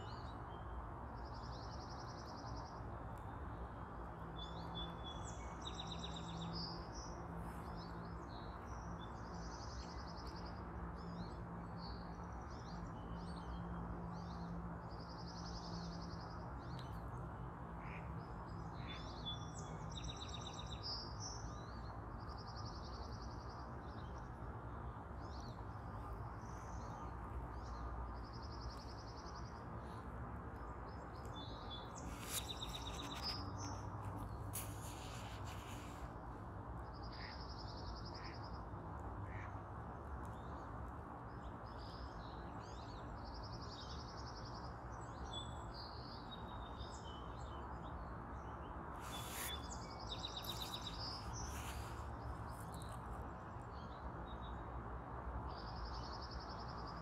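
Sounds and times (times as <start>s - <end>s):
songbirds trilling: 30.6s - 36.1s, 49.0s - 53.0s.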